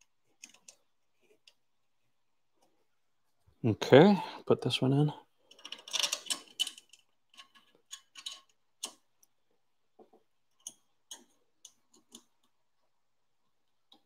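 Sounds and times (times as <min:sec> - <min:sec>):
small parts clicking: 0:00.0 - 0:01.6, 0:05.4 - 0:09.4, 0:10.4 - 0:12.6.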